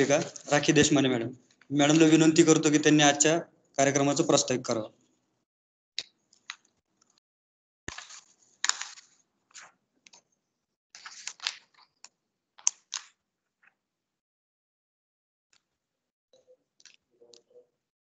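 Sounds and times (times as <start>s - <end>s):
rustling noises: 0.0s - 1.0s.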